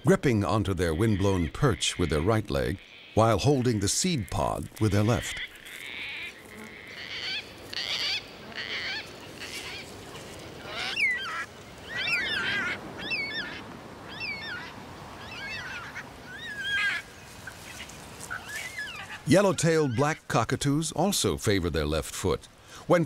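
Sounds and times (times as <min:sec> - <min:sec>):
cockatoos squawking: 0:04.8 - 0:20.2
cockatoos wavering calls: 0:04.9 - 0:20.0.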